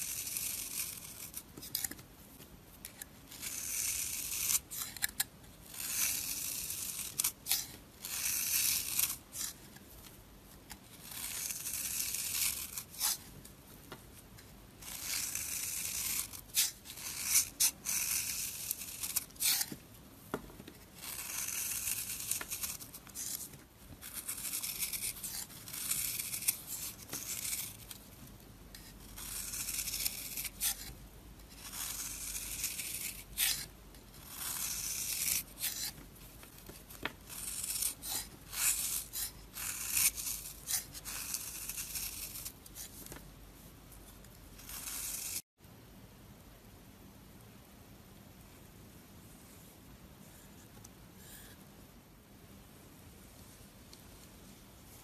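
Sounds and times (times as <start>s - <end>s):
knife shaving crumbly soap: 0.0s - 2.1s, 2.8s - 19.8s, 20.7s - 43.2s, 43.9s - 45.5s.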